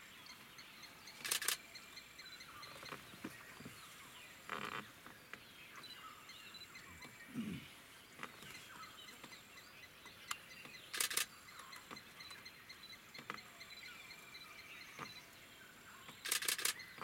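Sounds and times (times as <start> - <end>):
faint high chirping: 0.0 - 4.5, 5.7 - 7.8, 8.4 - 17.0
camera shutter clicks: 1.2 - 1.7, 10.9 - 11.3, 16.2 - 16.8.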